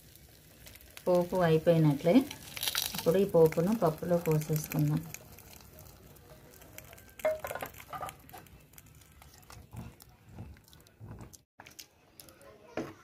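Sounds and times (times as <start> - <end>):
spoon stirring pot: 3.4 - 11.4.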